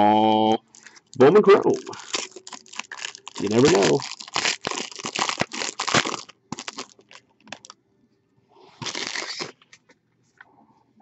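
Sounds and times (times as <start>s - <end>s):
foil wrapper crinkling: 0.7s - 7.7s, 8.8s - 9.8s
foil rustling: 1.7s - 7.7s, 8.8s - 9.6s.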